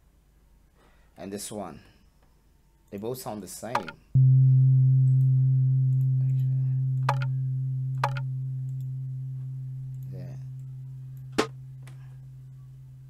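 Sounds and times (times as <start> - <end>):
low pitched percussion tone: 4.2 - 13.0.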